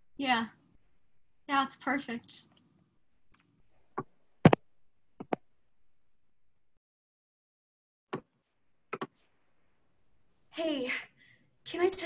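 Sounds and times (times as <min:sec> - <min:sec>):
sharp clicks and knocks: 0:05.2 - 0:05.5, 0:08.9 - 0:09.2.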